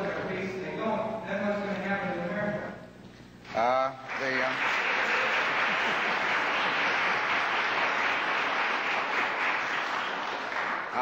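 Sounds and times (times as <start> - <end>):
audience applauding: 4.0 - 11.0.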